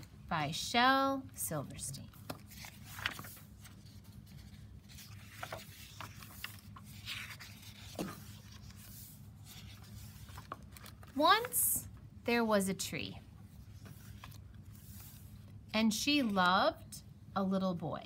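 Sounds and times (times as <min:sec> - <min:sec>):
low steady hum: 0:00.0 - 0:18.0
book pages turning and rustling: 0:02.1 - 0:11.6, 0:13.5 - 0:16.4.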